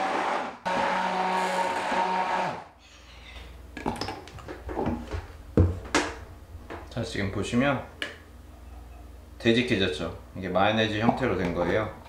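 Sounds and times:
electric blender running: 0.0 - 2.8.

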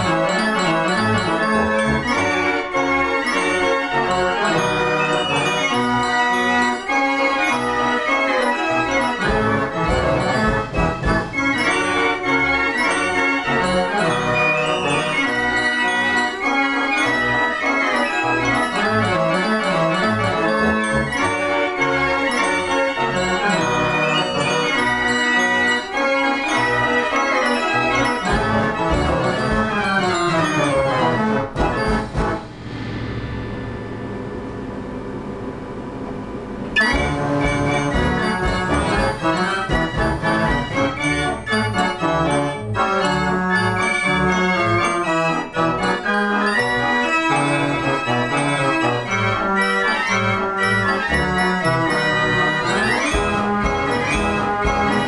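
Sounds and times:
fairground organ playing: 0.0 - 55.0
percussion hits: 9.0 - 12.3, 28.1 - 35.6, 36.7 - 42.2, 51.8 - 55.0.

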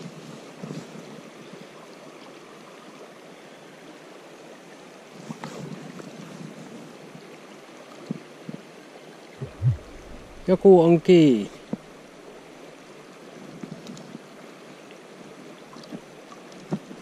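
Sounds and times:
brief soft sounds: 9.4 - 11.9.

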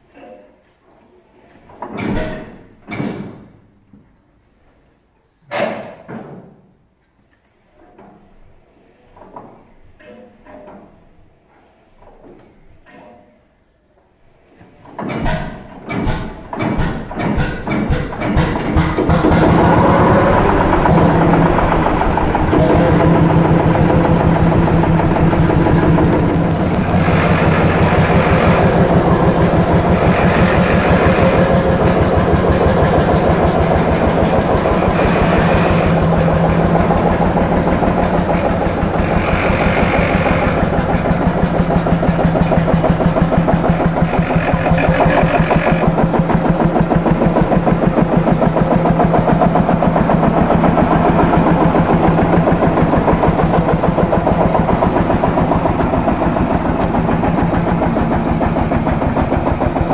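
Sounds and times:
tractor engine thumping: 15.1 - 59.9.

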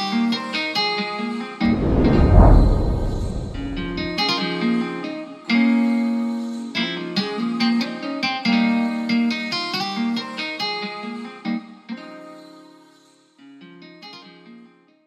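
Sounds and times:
noisy rushing sound: 1.6 - 4.2.

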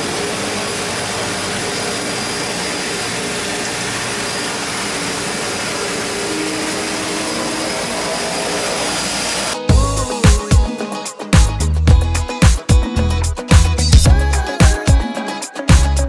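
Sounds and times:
propeller engines droning: 0.0 - 9.6.

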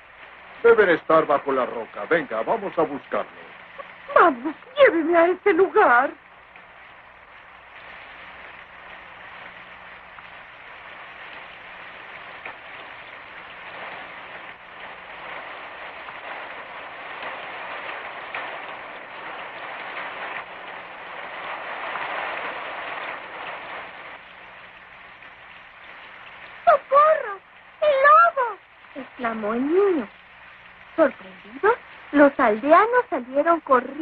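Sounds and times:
steady rain: 0.0 - 34.0.

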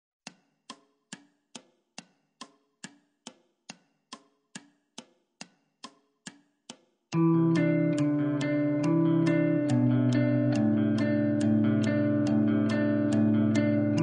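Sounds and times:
sharp ringing ticks: 0.6 - 14.0.

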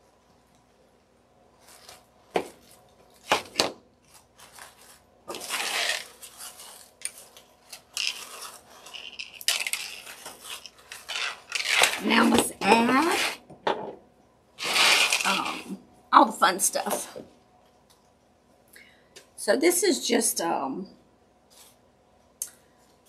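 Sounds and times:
paper rustling and crunching: 1.6 - 12.3.

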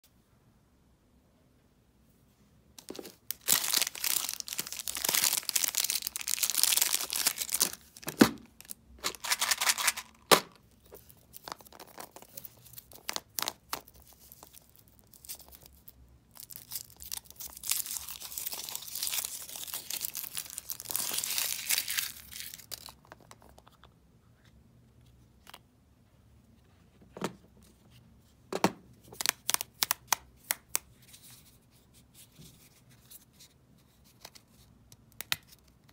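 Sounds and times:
foil wrapper crinkling and tearing: 2.8 - 23.0.

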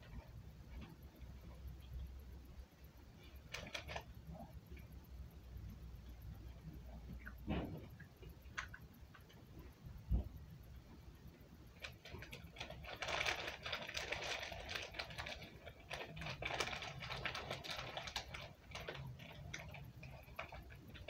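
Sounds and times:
chewing with crackly rustles: 11.6 - 21.0.

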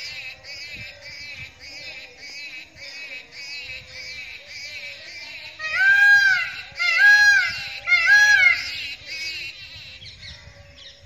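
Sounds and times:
peafowl calling: 2.3 - 9.8.

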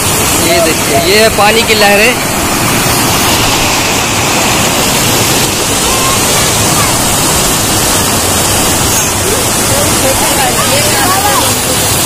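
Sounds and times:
floodwater rushing over a ledge: 0.0 - 12.0.

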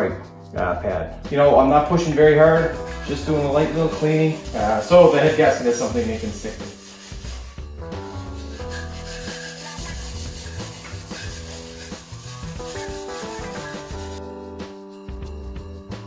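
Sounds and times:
background music: 0.0 - 16.0
scouring pad rubbing metal: 1.9 - 14.2.

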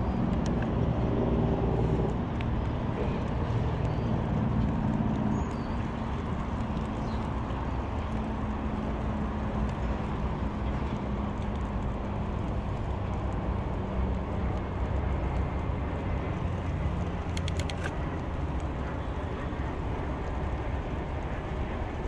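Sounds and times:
bicycle tyres on paved road: 0.0 - 22.0
wind rushing over microphone: 0.0 - 22.0
quick clicks: 17.2 - 18.0.

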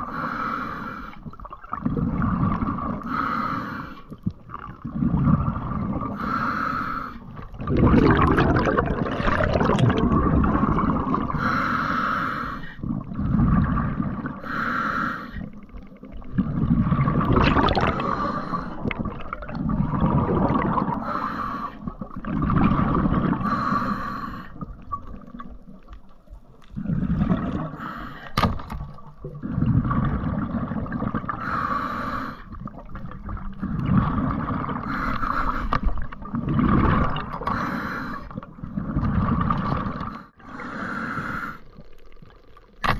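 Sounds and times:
exhaled bubbles rushing: 1.3 - 3.1, 4.2 - 6.2, 7.3 - 11.5, 12.8 - 14.4, 15.5 - 21.2, 21.8 - 23.6, 26.7 - 27.8, 28.6 - 31.6, 32.5 - 35.0, 35.8 - 37.7, 38.3 - 40.2
regulator inhalation hiss: 14.4 - 15.5.

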